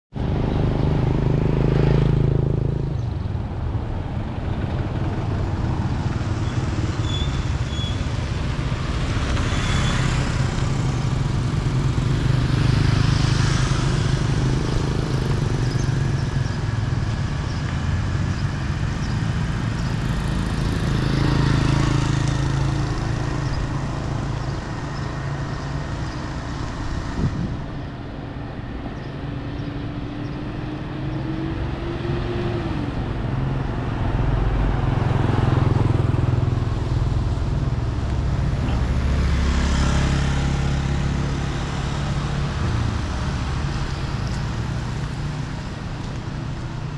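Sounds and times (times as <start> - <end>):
motor scooters passing: 0.2 - 46.9
tyres on wet road: 3.4 - 46.9.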